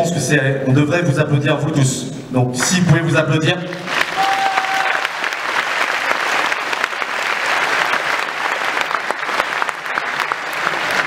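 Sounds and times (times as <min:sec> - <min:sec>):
large audience applauding: 0:03.7 - 0:11.0.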